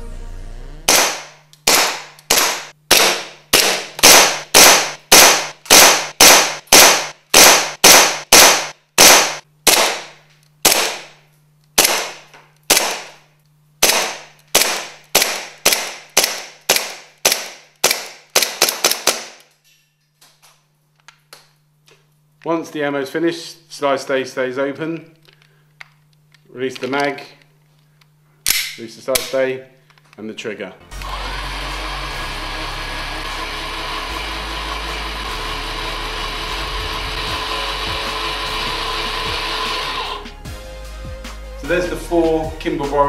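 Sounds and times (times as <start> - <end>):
airsoft pistol shots cracking: 0.9 - 11.1, 11.8 - 13.2, 13.8 - 19.4.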